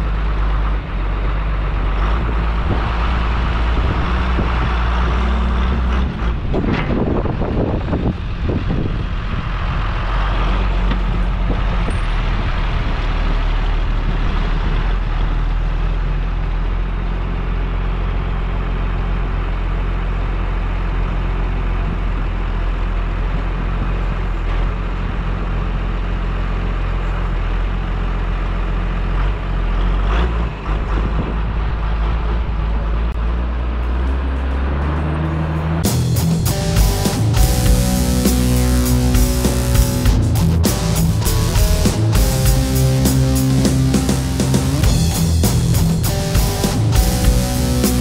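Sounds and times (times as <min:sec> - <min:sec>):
diesel engine droning: 0:00.0 - 0:48.0.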